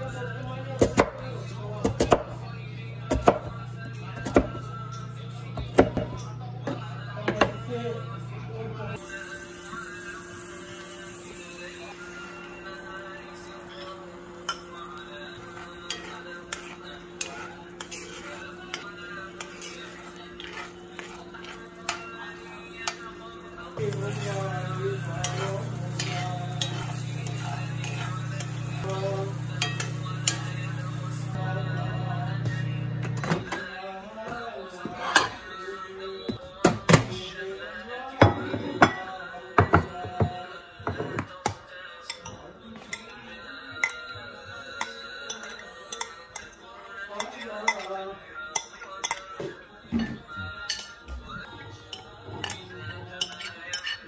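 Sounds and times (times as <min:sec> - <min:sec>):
background music: 0:07.1 - 0:54.0
metal spoon scraping skillet: 0:13.6 - 0:23.1, 0:23.7 - 0:31.4
dishes clinking on countertop: 0:38.2 - 0:43.1.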